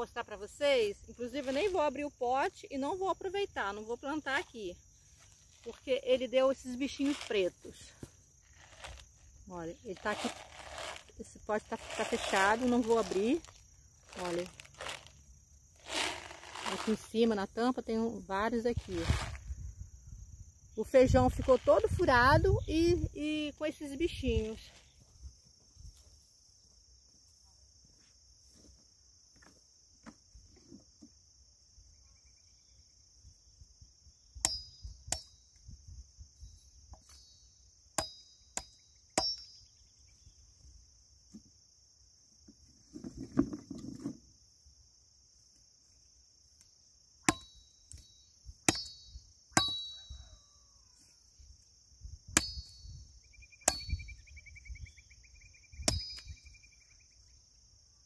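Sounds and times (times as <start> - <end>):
insect buzz: 0.0 - 58.0
machete chopping stems: 48.7 - 49.0, 52.4 - 52.6.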